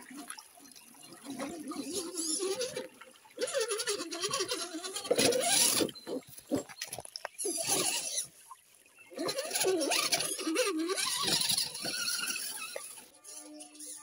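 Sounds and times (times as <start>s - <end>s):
rc car electric motor whining: 3.4s - 6.2s, 7.4s - 8.3s, 9.2s - 14.0s.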